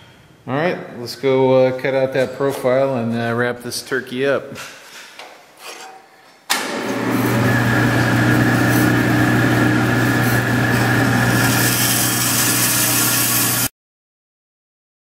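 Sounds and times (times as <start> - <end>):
bandsaw humming: 6.6 - 13.7
bandsaw blade cutting plastic: 6.9 - 13.7.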